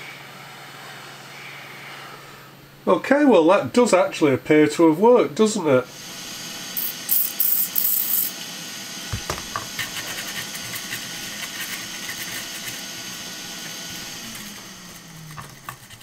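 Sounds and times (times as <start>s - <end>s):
hot air station hissing: 5.8s - 16.0s.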